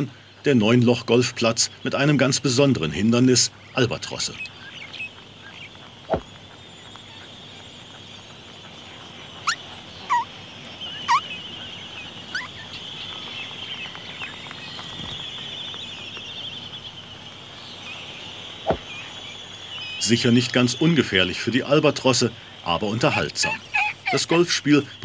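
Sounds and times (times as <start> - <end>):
albatross squeals: 9.4 - 10.3, 10.9 - 11.4, 12.3 - 12.7, 23.0 - 24.6.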